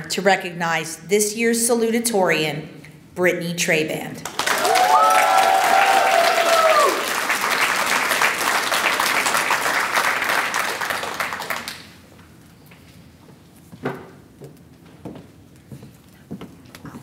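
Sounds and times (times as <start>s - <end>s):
audience applauding: 4.2s - 12.0s
voices whooping and cheering: 4.5s - 7.2s.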